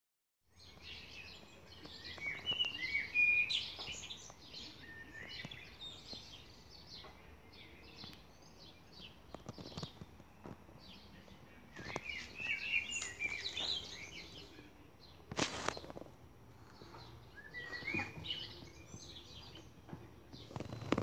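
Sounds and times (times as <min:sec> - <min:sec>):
birds singing and chirping: 0:00.5 - 0:21.0.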